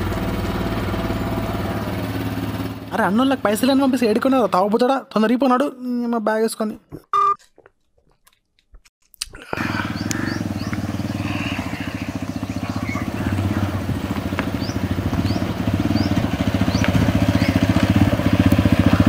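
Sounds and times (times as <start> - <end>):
motorcycle engine running: 0.0 - 4.7, 9.6 - 19.0.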